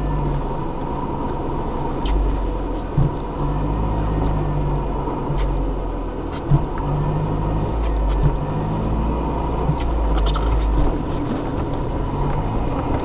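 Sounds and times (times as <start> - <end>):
car engine running: 0.0 - 13.0
car knocks and rattles: 1.3 - 3.4, 5.3 - 7.0, 7.6 - 8.6, 9.5 - 13.0.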